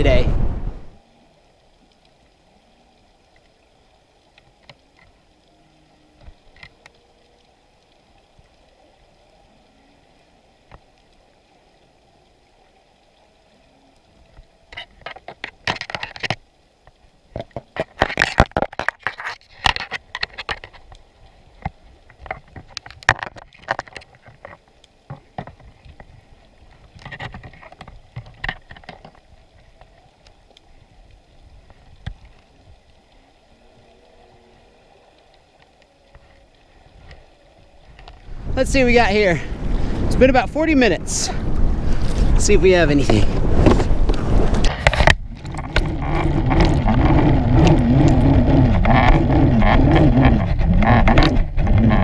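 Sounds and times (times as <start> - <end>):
underwater knocking and rattling: 14.7 - 30.4, 31.5 - 32.9, 42.0 - 52.0.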